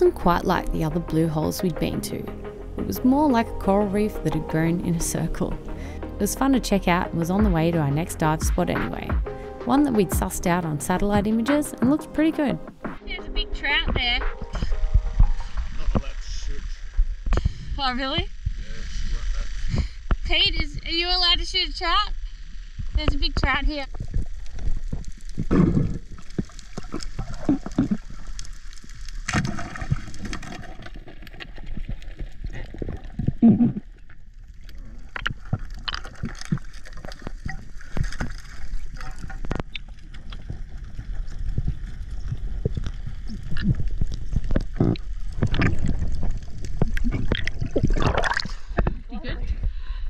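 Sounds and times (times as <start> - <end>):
water gurgling and sloshing: 22.2 - 49.8.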